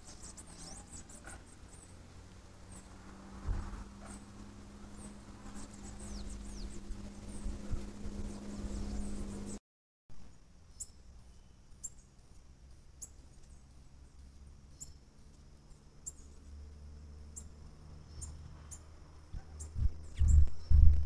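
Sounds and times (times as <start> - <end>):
low thumps and rumbles: 19.3 - 21.0.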